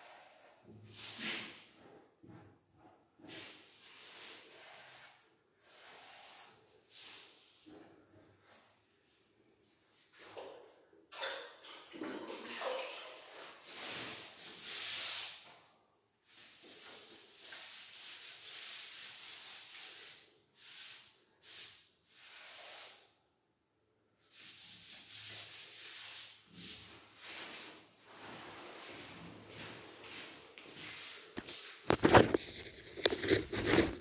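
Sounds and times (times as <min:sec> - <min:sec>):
pad rubbing on ceramic tiles: 0:30.8 - 0:34.0.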